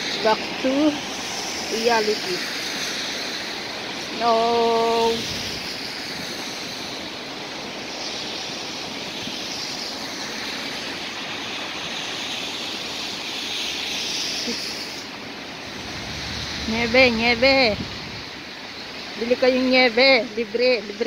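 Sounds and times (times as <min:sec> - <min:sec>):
city street traffic noise: 0:15.6 - 0:19.4.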